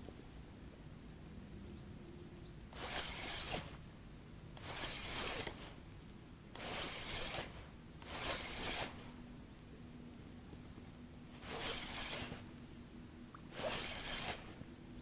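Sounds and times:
spinning reel being cranked: 2.8 - 3.7, 4.6 - 5.6, 6.6 - 9.0, 11.4 - 12.4, 13.5 - 14.5.

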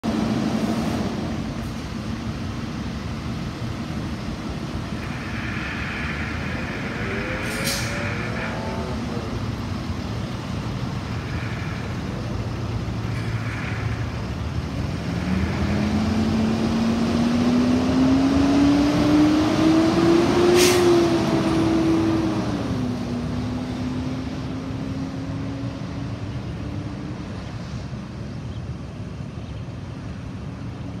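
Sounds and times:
truck engine revving: 0.1 - 26.2
sharp hisses: 4.8 - 9.8.

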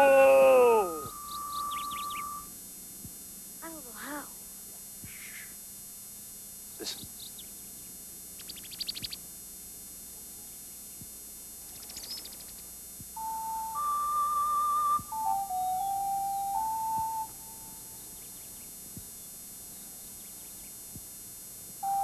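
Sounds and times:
wooden bird whistle chirping: 0.6 - 2.5, 13.2 - 18.0.

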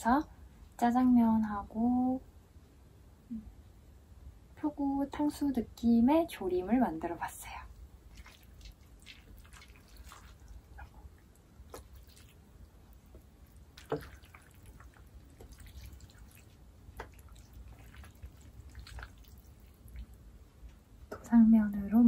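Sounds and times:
chopsticks squishing noodles: 7.7 - 21.0.

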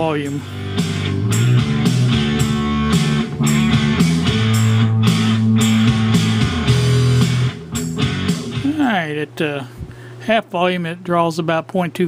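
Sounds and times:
rock music through speakers: 0.0 - 9.0.

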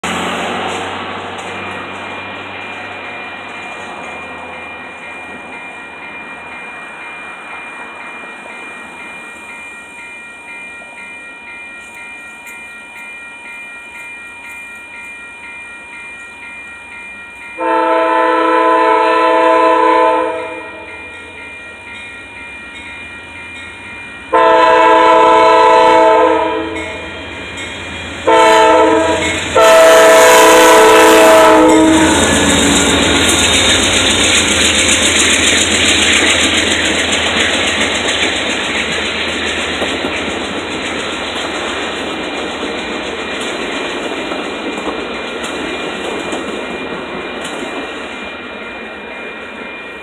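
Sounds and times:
railroad crossing bell ringing: 0.0 - 50.0
locomotive air horn blasts: 17.6 - 20.9, 24.3 - 27.1, 28.2 - 33.3.

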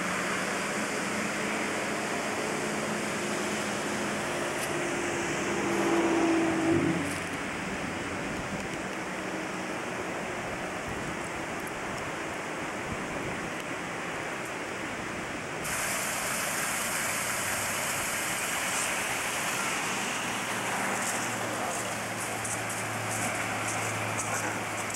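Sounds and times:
running water rushing: 0.0 - 24.9.

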